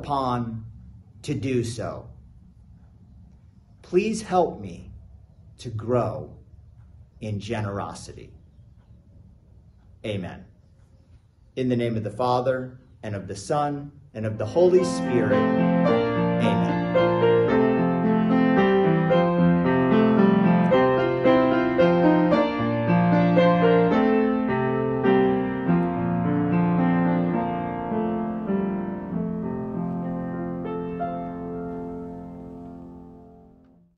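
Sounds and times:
slow piano music: 14.4 - 33.9.

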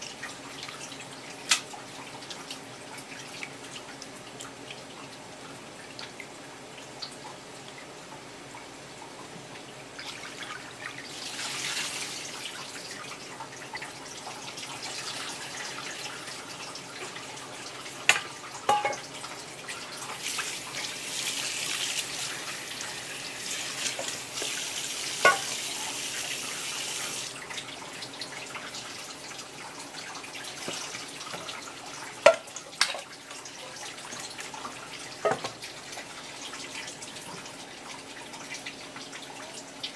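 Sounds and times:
tap water splashing into steel bowl: 18.0 - 19.1, 25.2 - 25.6, 32.2 - 33.1, 35.2 - 35.6.

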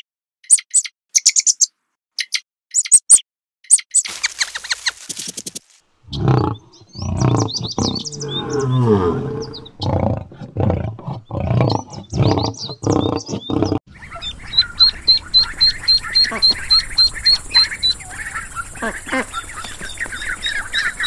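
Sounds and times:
lion roaring: 6.1 - 13.8
ducklings peeping: 11.7 - 21.0.

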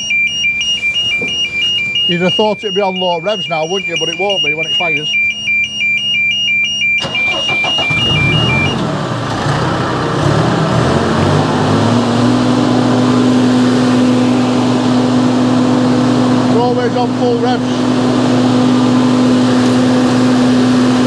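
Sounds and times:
two-tone warning alarm beeping: 0.0 - 8.8
diesel engine cranking and revving: 0.0 - 21.0.

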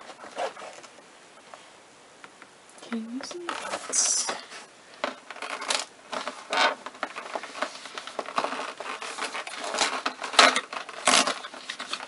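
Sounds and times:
cardboard scratching and crinkling: 0.0 - 1.0, 3.4 - 12.0.

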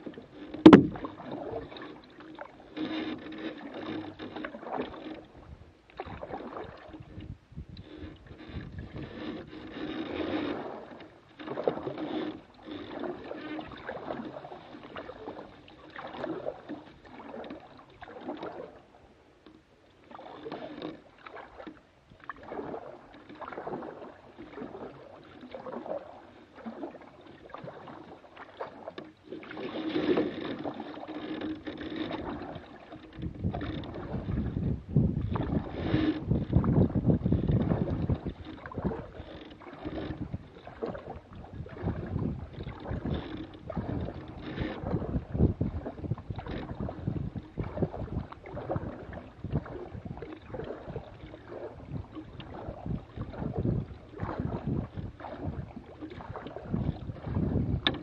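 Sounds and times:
water splashing against boat hull: 0.0 - 58.0
wind on microphone: 5.3 - 10.7, 32.1 - 58.0.

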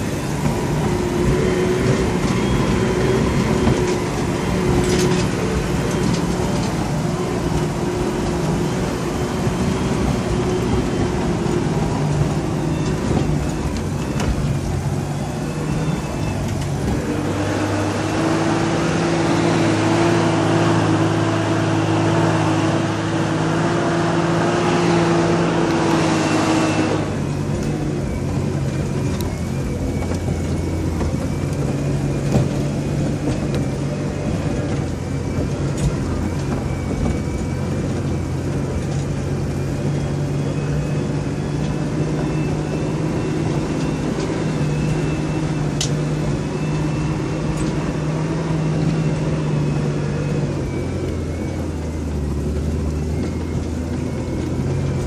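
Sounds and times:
vehicle engine running under load: 0.0 - 55.0.

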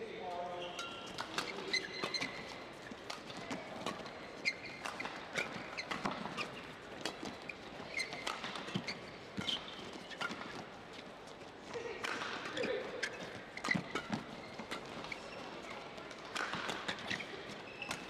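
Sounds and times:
shoes squeaking on court: 0.4 - 18.0
racket hitting shuttlecock: 0.8 - 10.7, 11.8 - 18.0.

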